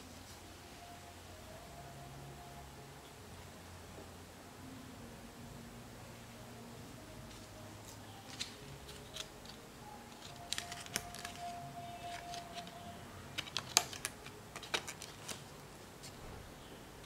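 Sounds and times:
fingers clicking a cardboard tag: 8.3s - 12.8s, 13.4s - 15.5s.

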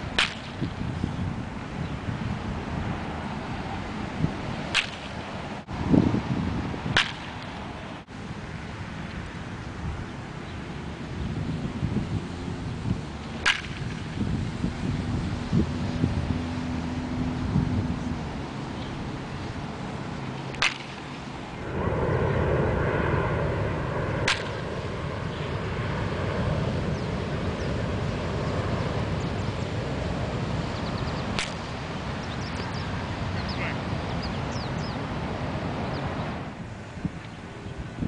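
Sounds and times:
baseball bat cracking ball: 0.1s - 0.8s, 4.7s - 5.3s, 6.9s - 7.6s, 13.4s - 14.2s, 20.3s - 21.2s, 24.2s - 24.7s, 31.4s - 31.7s.

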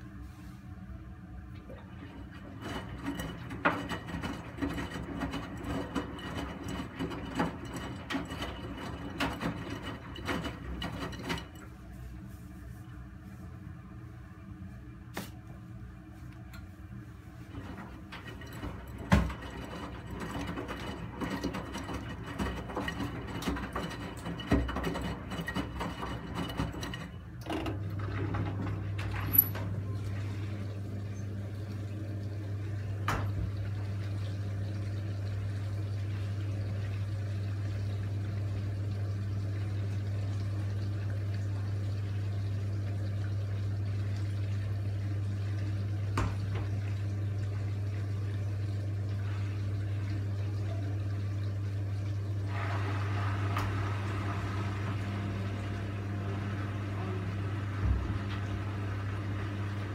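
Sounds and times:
washing machine low hum: 0.0s - 59.9s
washing machine drum tumbling: 1.7s - 11.7s, 17.5s - 36.0s, 52.0s - 59.9s
running water: 27.7s - 59.9s.

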